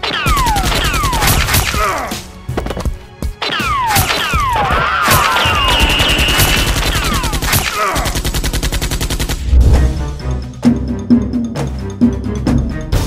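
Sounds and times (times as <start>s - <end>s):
falling whistles: 5.2s - 6.8s
machine-gun fire: 5.4s - 9.6s.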